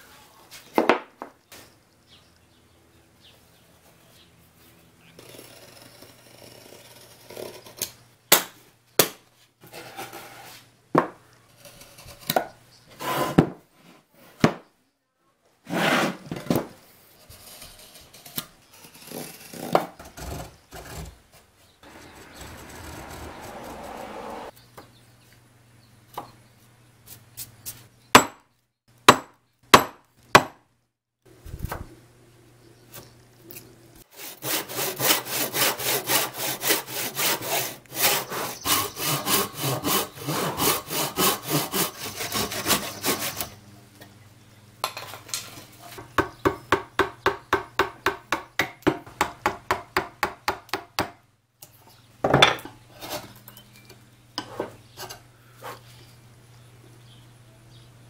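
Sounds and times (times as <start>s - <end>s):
hand saw cutting wood: 13.0s - 13.4s, 15.7s - 16.2s, 17.3s - 21.2s, 21.9s - 24.5s, 34.0s - 43.6s.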